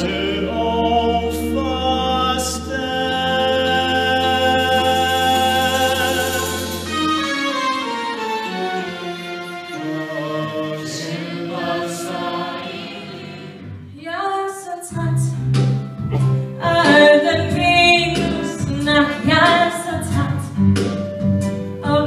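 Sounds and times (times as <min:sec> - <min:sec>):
choir singing held chords: 0:00.0 - 0:13.9.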